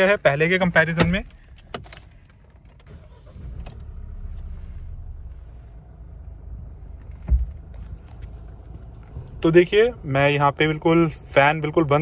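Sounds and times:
diesel engine idling: 0.0 - 12.0
low thump: 7.2 - 7.7.

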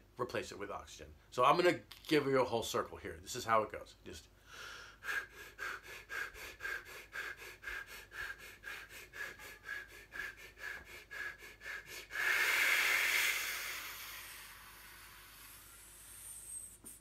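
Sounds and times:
man breathing quickly: 4.4 - 17.0
man exhaling hard: 4.5 - 17.0.

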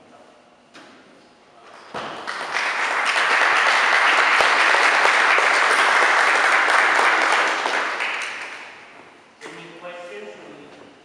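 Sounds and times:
audience clapping: 1.8 - 9.0.

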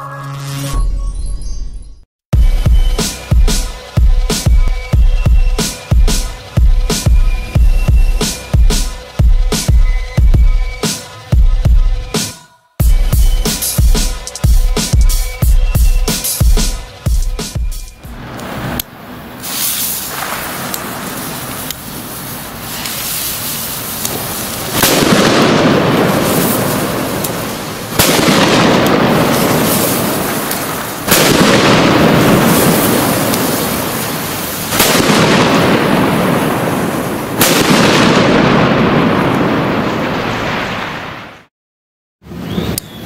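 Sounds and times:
firecracker bangs: 19.4 - 41.5.

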